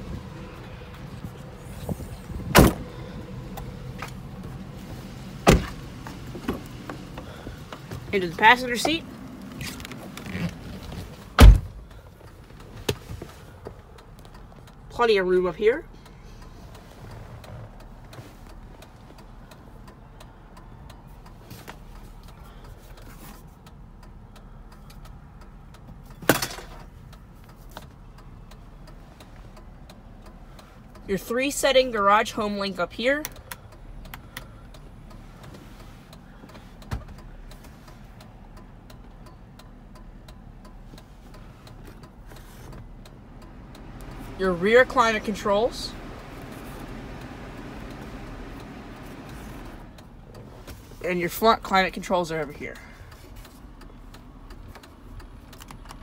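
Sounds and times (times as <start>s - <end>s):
low hum inside car cab: 0.0s - 56.0s
car doors slamming: 2.3s - 3.0s, 5.3s - 8.0s, 9.6s - 11.9s.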